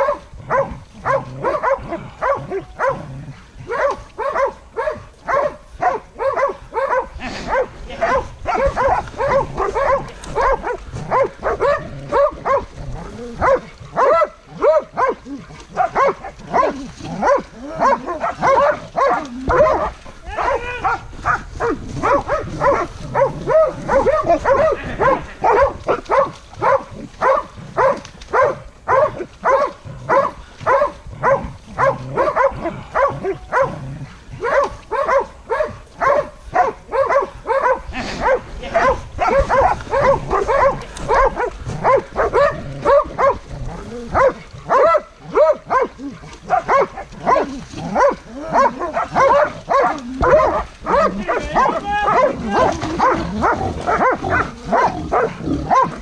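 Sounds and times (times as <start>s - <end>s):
dog barking: 0.0s - 12.8s, 13.4s - 43.5s, 44.1s - 56.0s.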